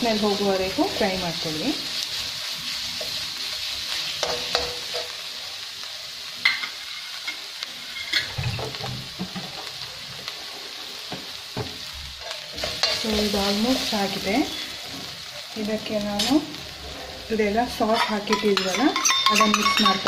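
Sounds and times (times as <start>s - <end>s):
food sizzling in oil: 0.0s - 20.0s
metal ladle clinking on pan: 18.0s - 20.0s.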